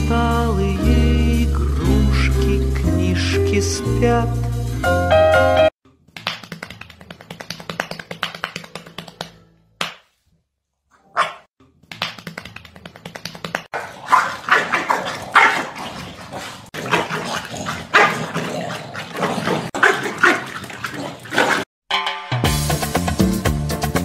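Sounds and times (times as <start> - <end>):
dogs barking: 10.9 - 11.5, 13.7 - 21.7.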